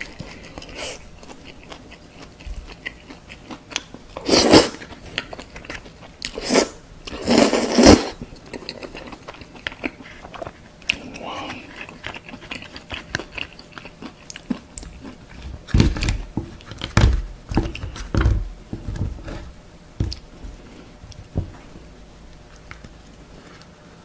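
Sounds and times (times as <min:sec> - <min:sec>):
chewing and crunching snacks: 0:00.0 - 0:18.0.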